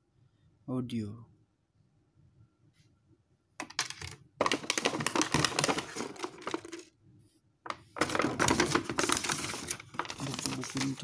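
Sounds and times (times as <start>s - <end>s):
packaging clicks and crinkles: 3.6s - 6.9s, 7.7s - 11.0s.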